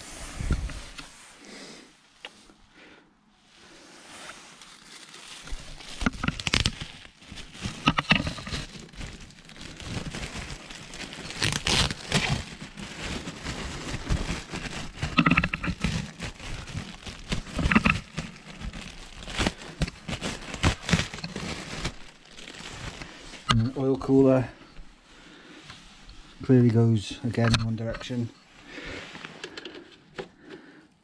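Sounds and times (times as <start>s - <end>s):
plastic packaging crinkling: 3.8s - 24.4s.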